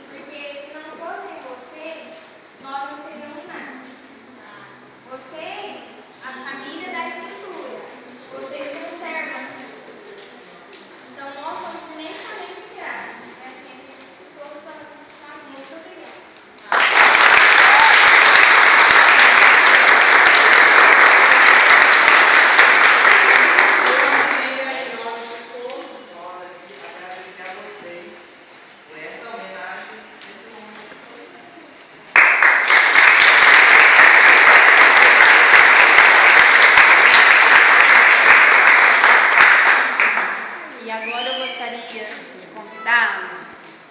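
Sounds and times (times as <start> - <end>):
audience applauding: 16.6 - 24.9, 32.1 - 40.7.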